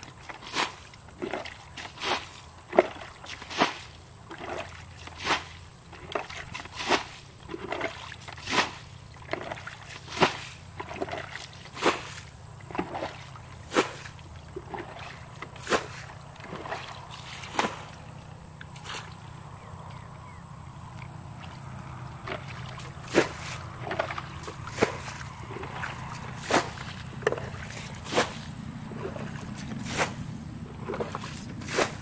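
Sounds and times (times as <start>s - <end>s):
pond water splashing and sloshing: 0.0s - 32.0s.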